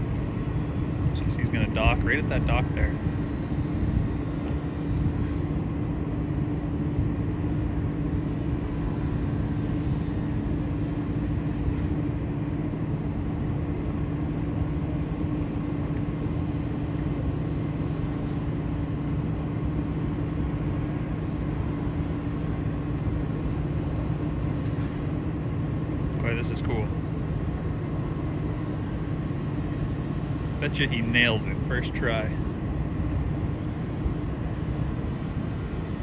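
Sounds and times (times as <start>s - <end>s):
boat diesel engine running: 0.0s - 5.4s, 27.8s - 36.0s.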